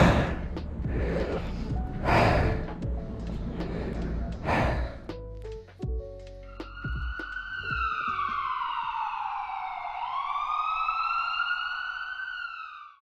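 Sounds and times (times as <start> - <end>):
emergency siren wailing: 6.4 - 13.0.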